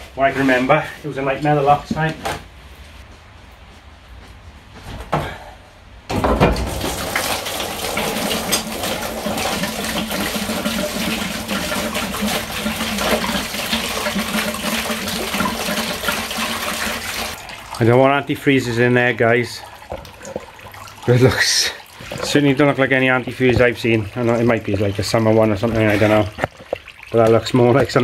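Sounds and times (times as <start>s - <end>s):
coolant gushing into drain pan: 6.4s - 28.0s.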